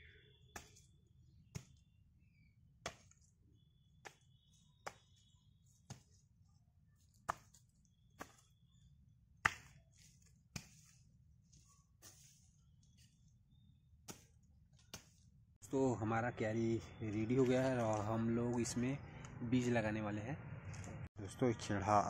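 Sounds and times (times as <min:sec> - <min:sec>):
hoe chopping dry soil: 0:00.5 - 0:01.9, 0:02.8 - 0:03.3, 0:03.9 - 0:06.3, 0:07.1 - 0:08.6, 0:09.4 - 0:11.0, 0:12.0 - 0:12.5, 0:14.0 - 0:15.2.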